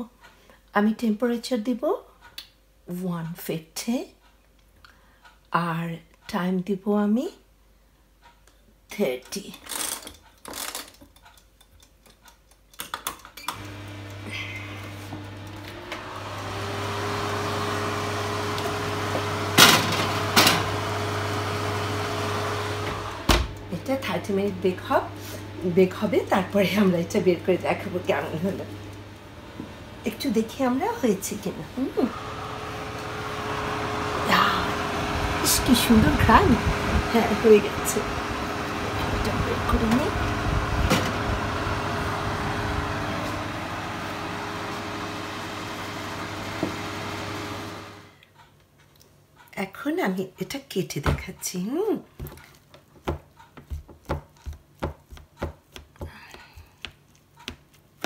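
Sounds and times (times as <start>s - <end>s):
electric oven hum: 13.5s - 48.2s.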